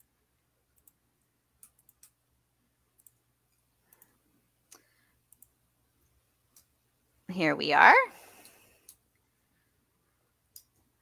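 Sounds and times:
computer mouse clicks: 0:00.7 - 0:01.0, 0:01.6 - 0:02.2, 0:02.9 - 0:05.6, 0:06.5 - 0:06.7, 0:08.4 - 0:09.0, 0:10.5 - 0:10.9.

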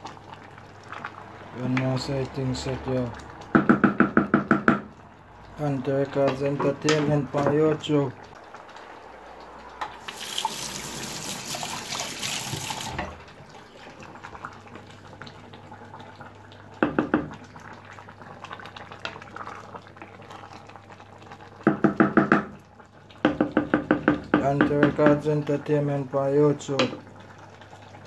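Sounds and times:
water running from tap: 0:10.0 - 0:13.2.

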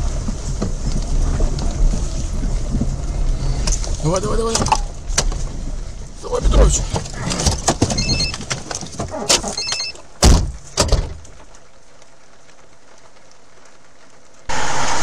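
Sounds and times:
car door opening and slamming: 0:06.6 - 0:11.3
knocks and clicks: 0:06.9 - 0:11.4.

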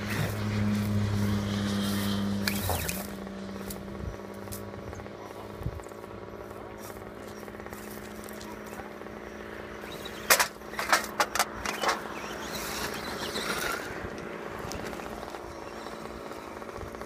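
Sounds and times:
rc car driving over gravel: 0:00.0 - 0:17.0
steady hum: 0:00.0 - 0:17.0
sharp knocks and clacks: 0:10.2 - 0:12.1.

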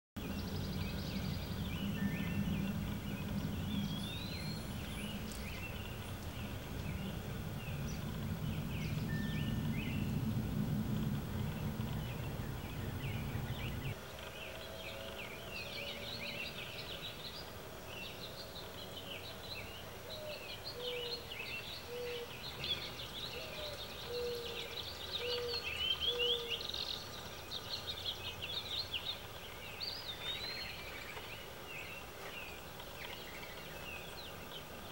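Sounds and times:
low rumble: 0:00.2 - 0:14.0
songbirds chirping: 0:00.2 - 0:34.9.

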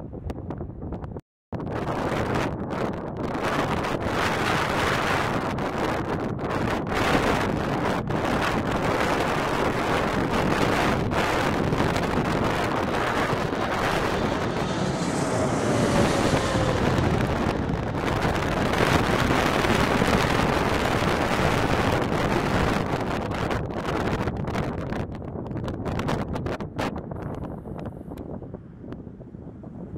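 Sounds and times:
wind buffeting microphone: 0:00.0 - 0:29.9
jet engines rushing overhead: 0:01.6 - 0:29.9
faint jet whine: 0:09.4 - 0:22.8.

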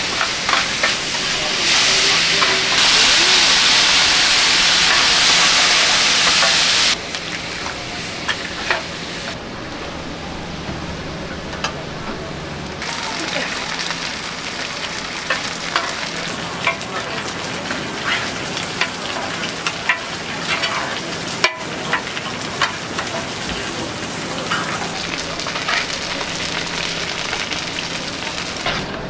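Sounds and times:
hot oil sizzling in a pan: 0:00.0 - 0:09.4, 0:12.8 - 0:28.8
metal spatulas scraping a pan: 0:16.6 - 0:23.4.

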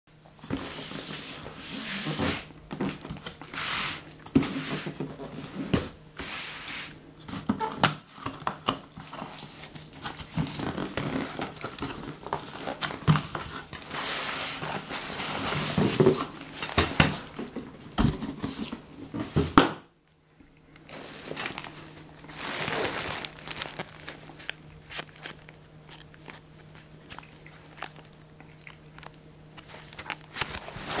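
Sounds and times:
packing tape ripping off box: 0:09.6 - 0:14.0, 0:22.3 - 0:28.1, 0:29.0 - 0:31.0
fabric bag rustling: 0:20.9 - 0:28.1
cardboard flaps scraping: 0:22.2 - 0:28.0, 0:29.7 - 0:31.0.

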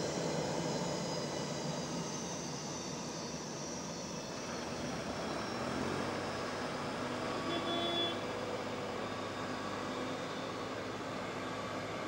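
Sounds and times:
jet engines running: 0:00.0 - 0:07.5, 0:08.2 - 0:12.0.

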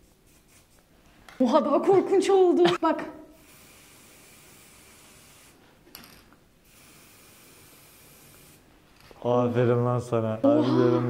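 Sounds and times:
spray-paint can hissing: 0:00.0 - 0:00.8, 0:03.4 - 0:05.6, 0:06.6 - 0:08.7.

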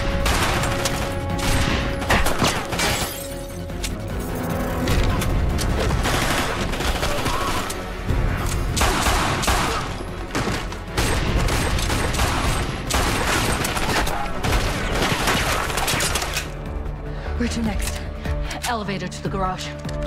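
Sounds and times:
rapid handgun gunfire: 0:10.4 - 0:16.0.

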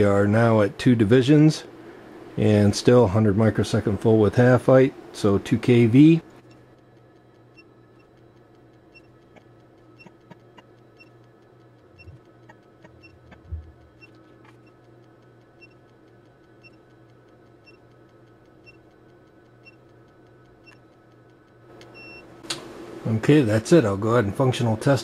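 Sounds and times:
faint electronic hum: 0:00.0 - 0:25.0
quiet ticks: 0:06.3 - 0:22.6.

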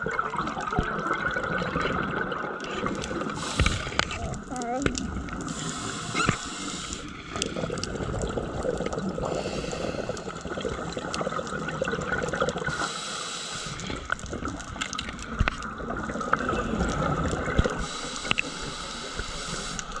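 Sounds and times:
gurgling exhaled bubbles: 0:00.0 - 0:20.0
regulator hissing inhalations: 0:03.4 - 0:04.2, 0:05.5 - 0:07.6, 0:09.2 - 0:10.4, 0:12.7 - 0:14.1, 0:17.8 - 0:20.0.

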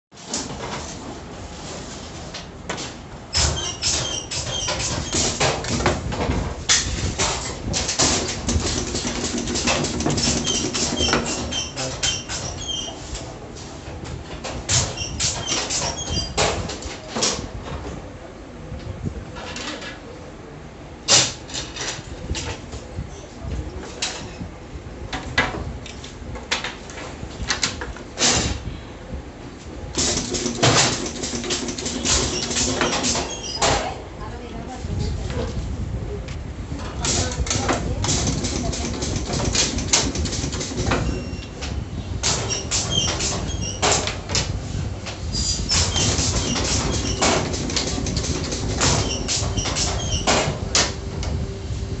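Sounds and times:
pinning machine clacks: 0:06.7 - 0:12.8, 0:30.0 - 0:33.9, 0:37.0 - 0:44.5, 0:45.6 - 0:51.0
steady hum: 0:34.0 - 0:52.0
machine clunks: 0:45.7 - 0:51.4
low steady hum: 0:50.5 - 0:52.0.

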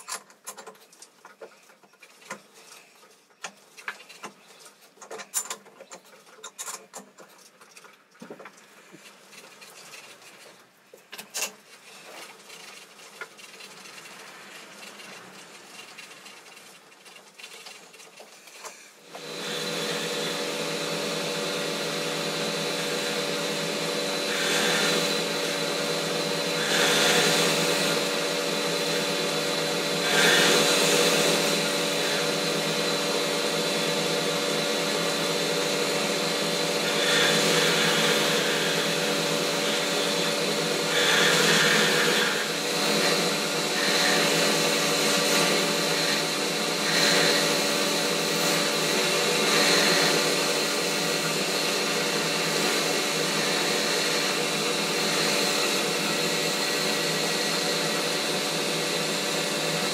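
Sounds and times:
tool cutting hiss: 0:18.6 - 0:59.9
lathe motor and gear hum: 0:19.0 - 0:59.9.

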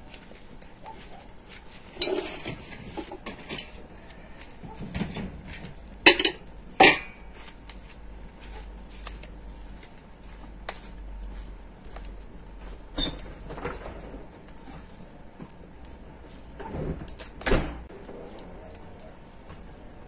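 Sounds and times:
objects clinking and knocking: 0:04.7 - 0:07.2.

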